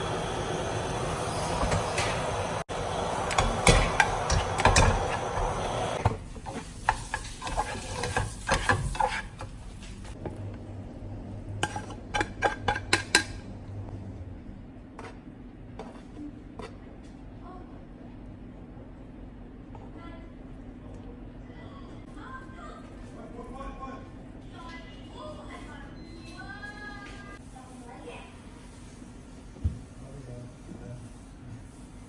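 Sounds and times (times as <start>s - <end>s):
cooking pan hiss: 0.0s - 9.2s
spatula scraping and tapping pan: 3.3s - 10.0s, 11.6s - 13.3s.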